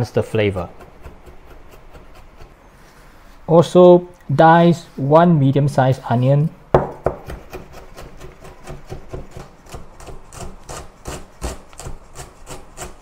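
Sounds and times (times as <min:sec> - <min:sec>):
knife chopping on wooden board: 0:00.7 - 0:02.5, 0:06.8 - 0:11.6.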